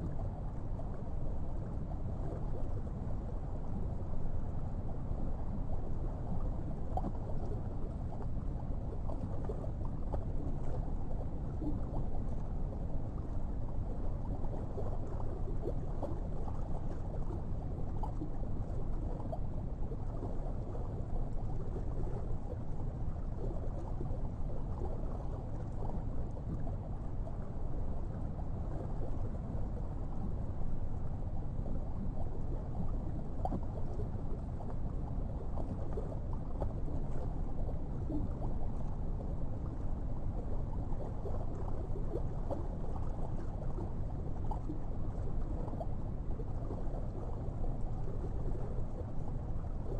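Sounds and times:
faint ticks and gurgles: 0.0s - 49.9s
low underwater rumble: 0.0s - 49.9s.

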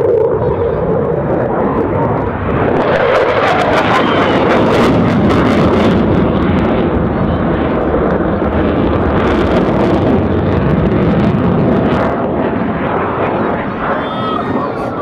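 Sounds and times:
loud jet engine noise: 0.0s - 15.0s.

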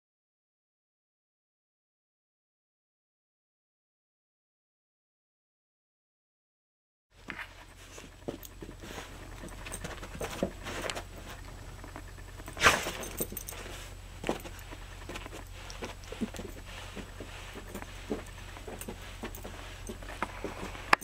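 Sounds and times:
paws padding on carpet: 7.2s - 21.0s
metal collar tag clinking: 12.4s - 21.0s.

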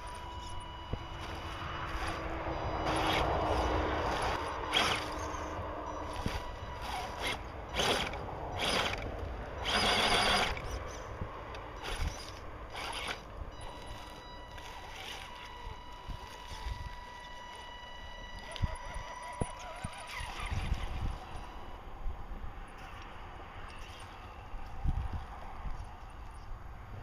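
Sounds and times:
toy car motor whirring: 0.0s - 11.1s, 11.8s - 21.8s.

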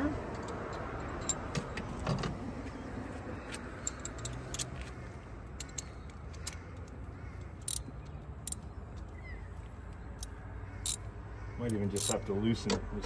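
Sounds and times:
metal sockets and ratchet clinking: 0.3s - 1.8s, 3.5s - 9.1s, 10.2s - 11.0s, 11.6s - 12.8s.

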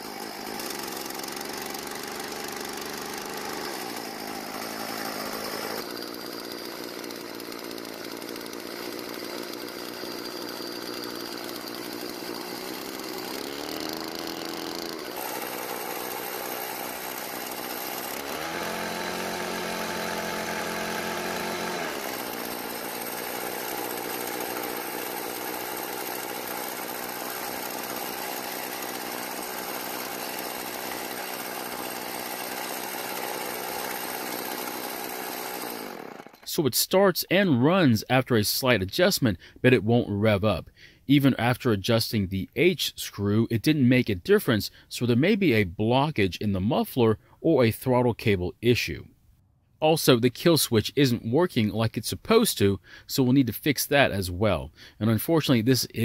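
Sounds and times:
string trimmer engine running: 0.0s - 36.6s.

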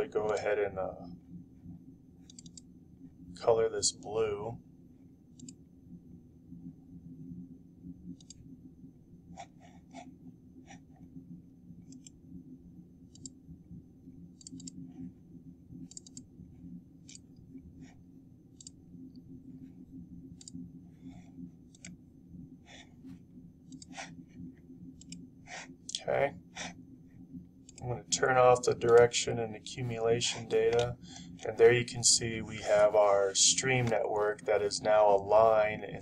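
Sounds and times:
faint low hum: 0.0s - 36.0s
computer mouse clicks: 2.2s - 2.7s, 5.3s - 5.6s, 8.1s - 8.5s, 11.8s - 12.2s, 13.1s - 13.4s, 14.3s - 15.0s, 15.8s - 16.3s, 17.0s - 17.5s, 18.5s - 19.2s, 20.3s - 22.0s, 23.6s - 24.1s, 24.9s - 26.0s, 27.6s - 27.9s.

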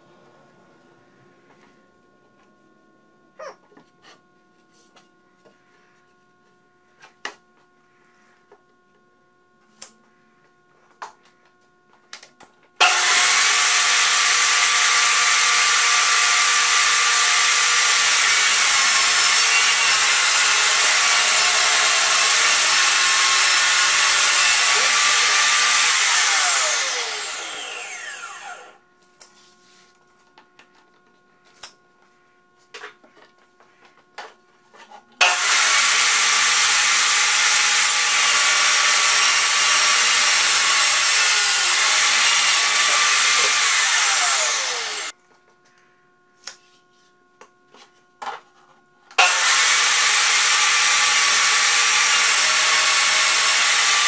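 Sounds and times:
saw blade cutting wood panel: 12.8s - 28.8s, 34.8s - 45.1s, 49.2s - 54.0s
saw winding down whine: 12.8s - 28.8s, 35.2s - 45.1s, 49.2s - 54.0s
table saw running: 12.8s - 28.8s, 35.2s - 45.1s, 49.2s - 54.0s.

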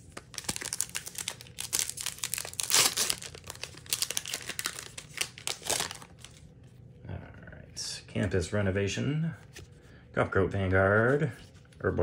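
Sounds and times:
foil wrapper crinkling and tearing: 0.0s - 6.4s.

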